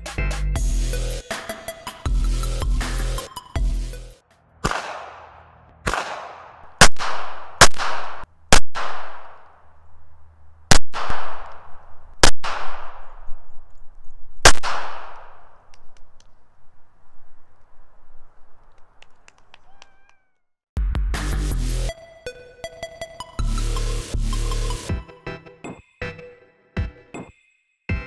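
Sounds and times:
gunshots with echo: 4.6s - 9.4s, 10.7s - 11.5s, 12.2s - 13.1s, 14.5s - 15.4s.

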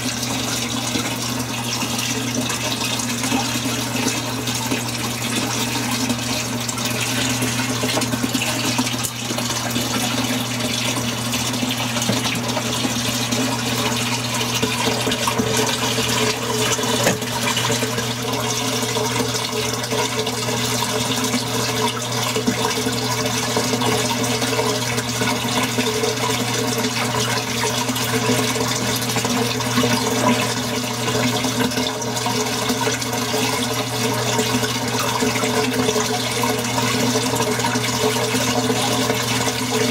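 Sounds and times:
running water rushing: 0.0s - 25.5s.

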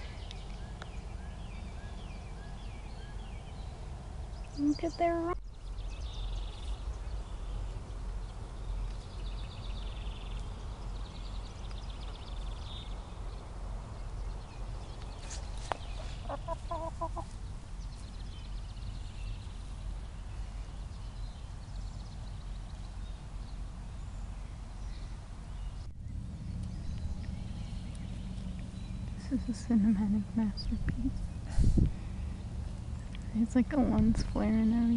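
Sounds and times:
hens clucking: 15.9s - 17.4s
low rumble: 25.0s - 34.9s.

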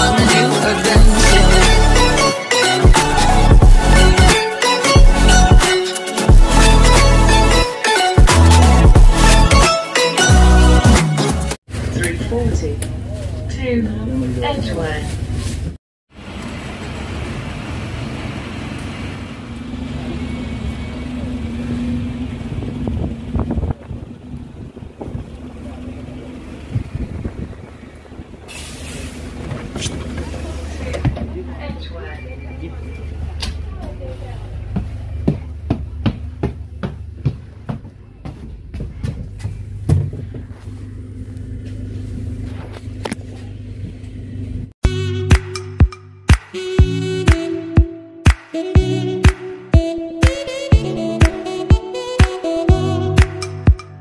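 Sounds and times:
bus engine low rumble: 11.7s - 44.8s.

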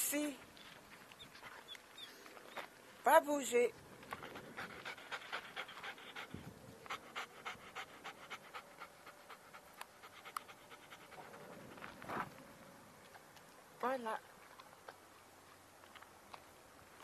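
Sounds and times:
dog panting: 4.1s - 12.0s.

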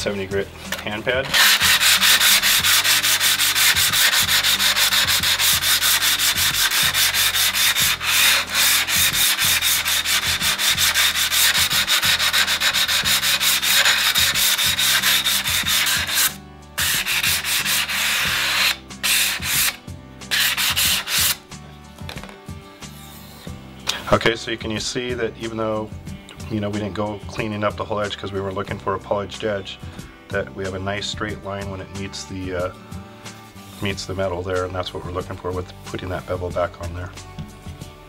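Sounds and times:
hand pad rasping on tile edge: 1.2s - 21.4s.

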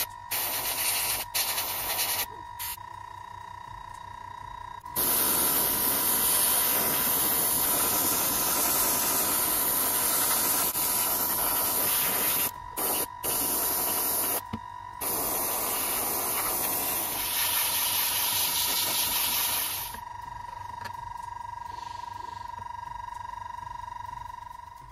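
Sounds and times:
airbrush hissing: 0.0s - 2.8s, 5.0s - 20.0s.

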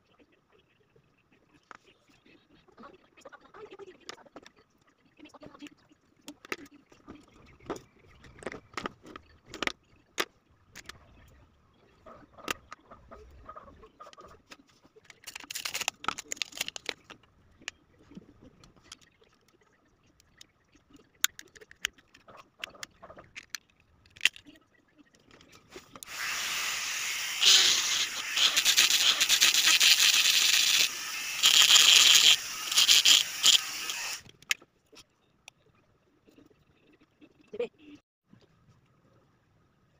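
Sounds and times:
plastic packaging crackling: 15.2s - 17.1s.

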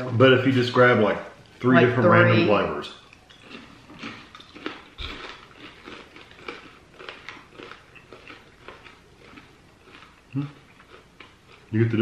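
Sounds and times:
person chewing crunchy popcorn: 3.1s - 12.0s.

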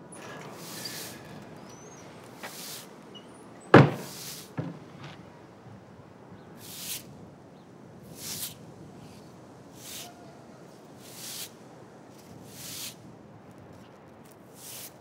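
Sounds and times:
broom sweeping: 0.2s - 1.4s, 2.3s - 3.0s, 3.9s - 4.7s, 6.6s - 7.0s, 8.2s - 9.2s, 9.8s - 10.2s, 11.0s - 11.5s, 12.2s - 13.0s, 14.5s - 15.0s
door banging shut: 0.2s - 2.5s, 3.1s - 5.3s
small knock: 3.8s - 5.2s.

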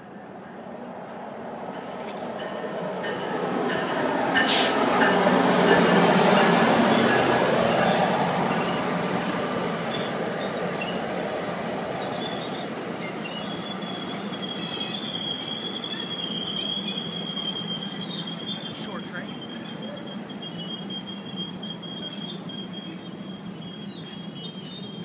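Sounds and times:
train rolling past: 0.0s - 25.0s
wheel and brake squeal: 9.9s - 25.0s.

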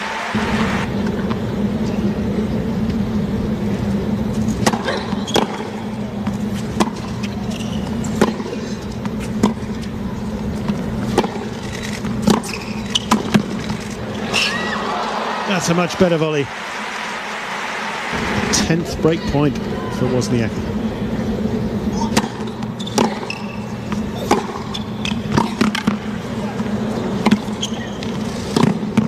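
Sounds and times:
low stadium hum: 0.0s - 29.0s
tennis ball strikes and bounces: 4.6s - 7.2s, 8.1s - 9.8s, 10.7s - 13.8s, 22.1s - 26.0s, 27.2s - 29.0s.

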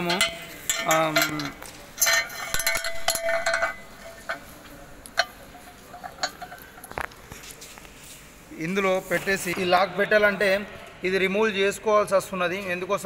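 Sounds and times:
metal parts clinking: 0.0s - 7.1s
metal clatter: 0.0s - 7.3s.

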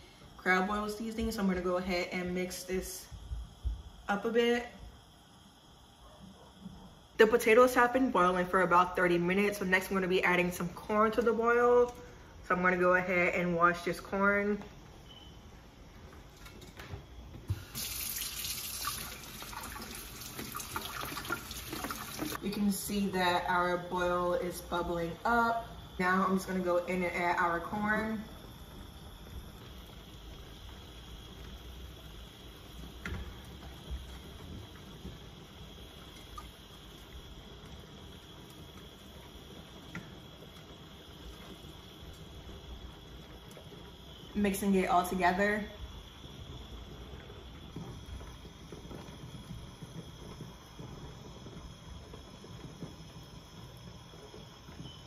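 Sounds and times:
pot bubbling: 17.2s - 55.0s
faucet running water into colander: 17.5s - 22.5s.

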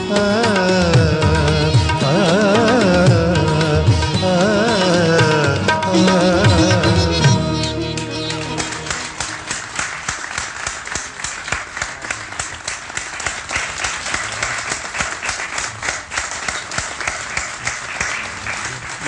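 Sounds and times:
audience applauding: 7.9s - 19.0s.

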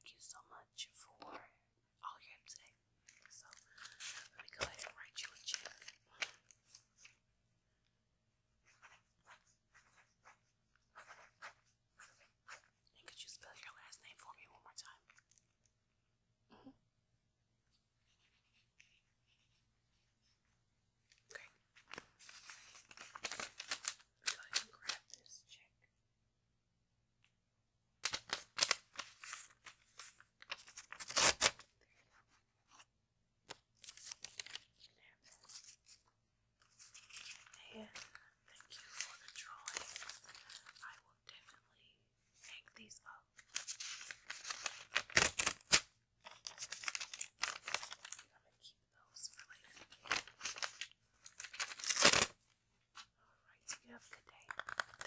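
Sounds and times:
notepad paper rustling: 3.0s - 7.2s, 8.6s - 13.9s, 21.3s - 25.1s, 28.0s - 32.9s, 33.5s - 41.5s, 43.4s - 48.3s, 49.3s - 53.1s, 53.7s - 55.0s
paper tearing from notepad: 30.5s - 31.6s, 43.4s - 48.2s, 50.1s - 52.3s.

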